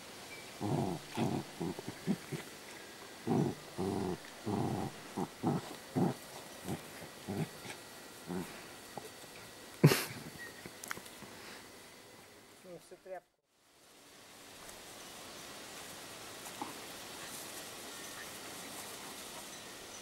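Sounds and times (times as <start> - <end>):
dogs growling: 0.6 - 9.1.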